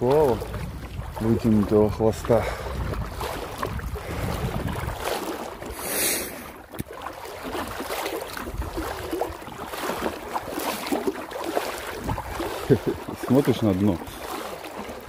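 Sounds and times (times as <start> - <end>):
sea water splashing and lapping: 0.0 - 15.0
small drip-like plops: 6.7 - 15.0.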